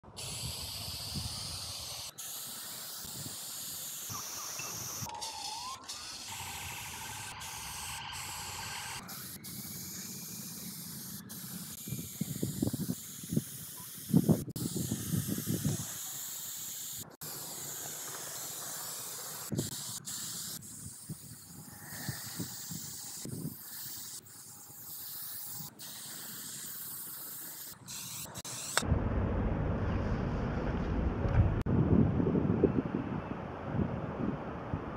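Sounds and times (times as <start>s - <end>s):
spray paint can hissing: 0.1s - 28.9s
low rumbles: 28.8s - 34.9s.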